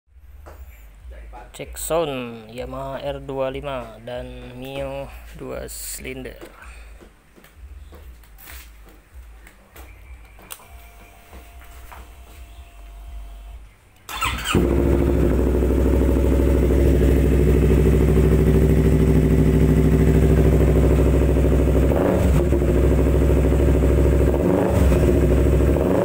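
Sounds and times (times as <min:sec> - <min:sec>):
motorcycle engine electric start: 0:10.5 - 0:26.0
engine throttle blips: 0:10.6 - 0:26.0
motorcycle engine idling: 0:12.2 - 0:26.0.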